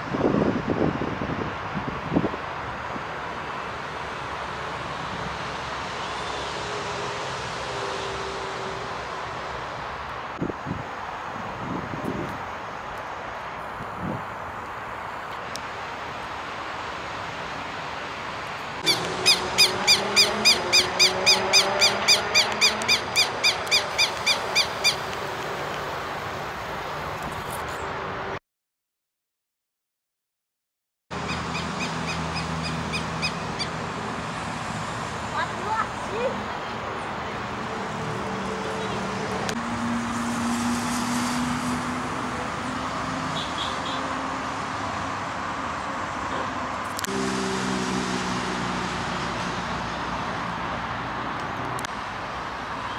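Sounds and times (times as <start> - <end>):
road traffic roar: 0.0 - 28.4, 31.1 - 52.9
bird calling sharp high notes: 18.8 - 25.1.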